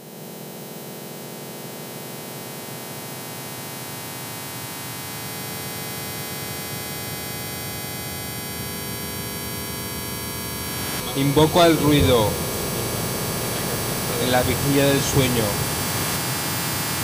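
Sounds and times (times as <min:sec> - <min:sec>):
industrial noise music drone: 0:10.3 - 0:17.0.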